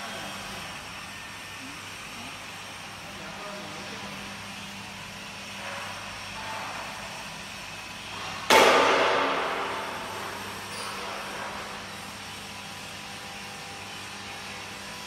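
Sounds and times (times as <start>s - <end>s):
workshop background noise: 0.0s - 15.0s
loud ringing bang: 8.5s - 10.1s.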